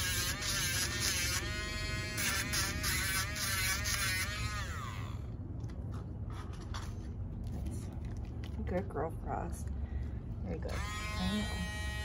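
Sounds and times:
nail grinder whining: 0.0 - 5.3.

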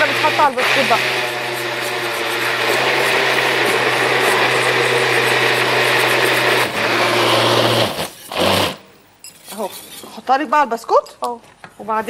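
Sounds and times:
blender motor whirring: 0.0 - 8.8.

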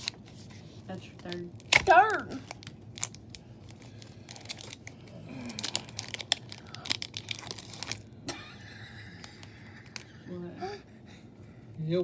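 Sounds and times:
foil wrapper crinkling and tearing: 0.9 - 8.2.

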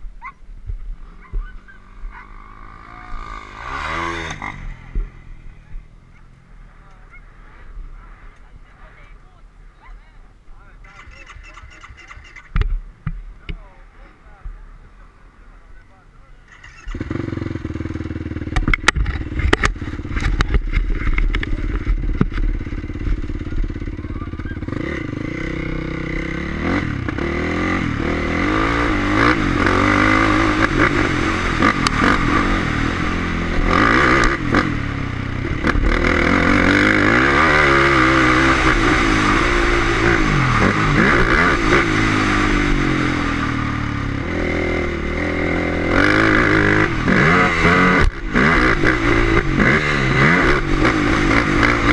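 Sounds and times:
dirt bike engine revving: 1.0 - 6.5, 16.5 - 51.9.

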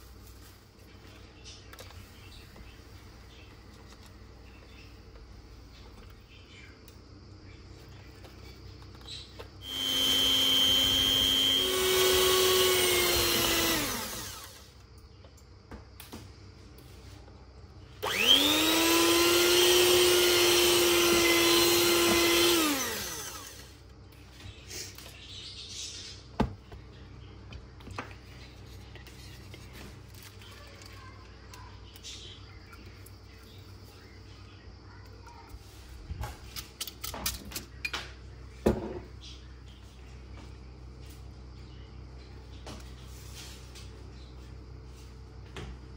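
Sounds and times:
electric hand mixer whirring: 9.6 - 14.8, 18.0 - 23.8.

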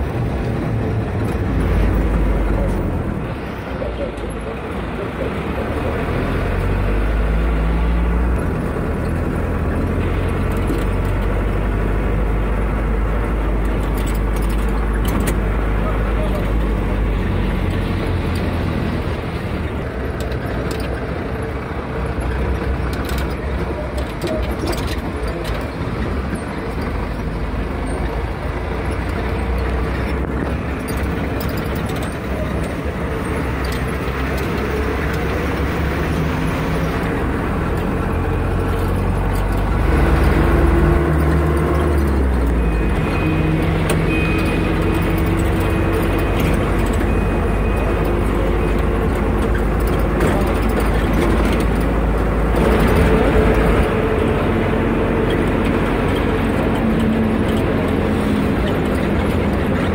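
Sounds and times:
vehicle engine and road noise: 0.0 - 59.9.

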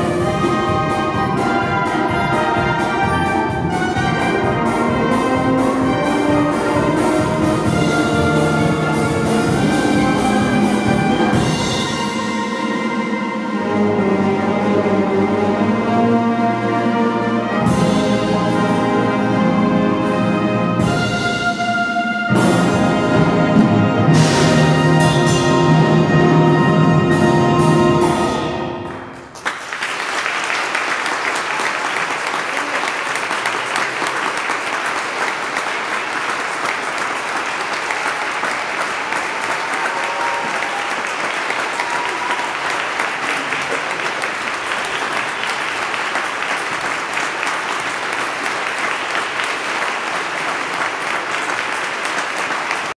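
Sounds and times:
audience applause: 29.0 - 53.0.

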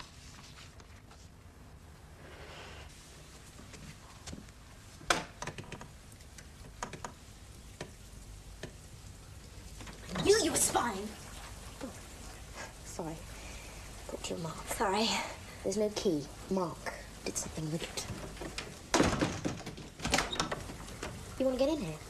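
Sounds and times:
low room hum: 0.0 - 22.0
door handle clicks and knocks: 18.4 - 21.3.

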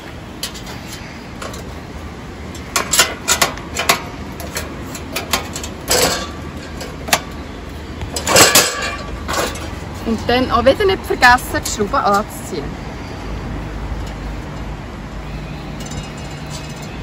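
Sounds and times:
metallic clicks and knocks: 2.5 - 7.4.

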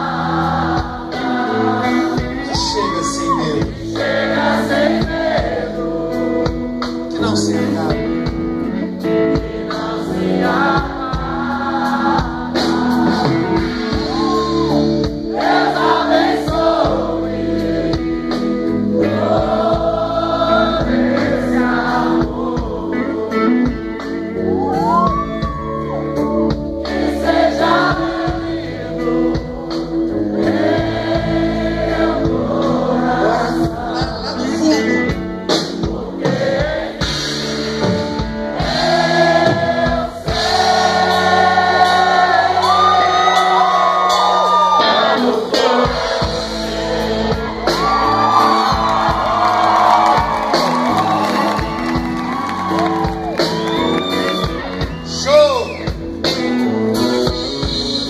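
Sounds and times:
live rock band: 0.0 - 58.0
man singing: 1.2 - 3.9, 7.1 - 8.7, 33.2 - 35.3.

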